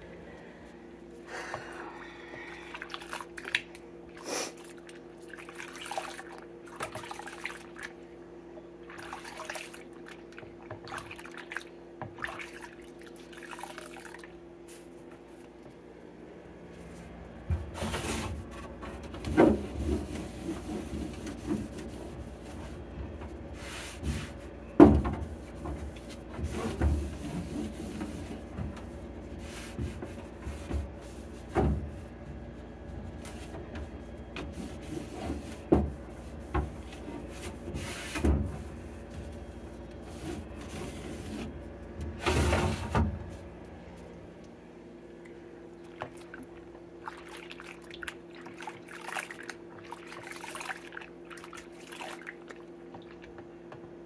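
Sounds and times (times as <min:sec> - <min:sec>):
cloth wiping plastic: 0:25.2 - 0:32.1, 0:33.2 - 0:41.6.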